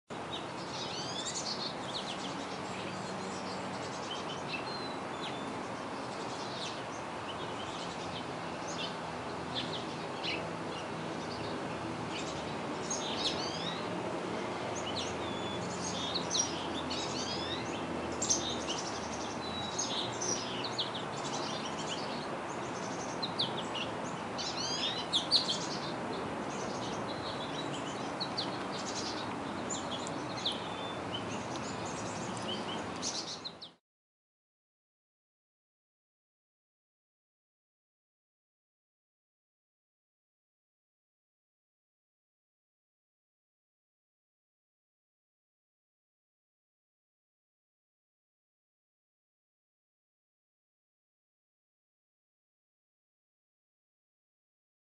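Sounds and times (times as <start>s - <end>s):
small songbirds chirping: 0.1s - 33.8s
steady background noise: 0.1s - 33.8s.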